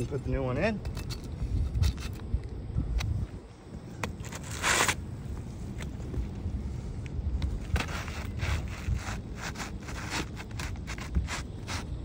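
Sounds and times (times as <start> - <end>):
shingle scraping against shingles: 4.1 - 5.1, 7.6 - 12.0.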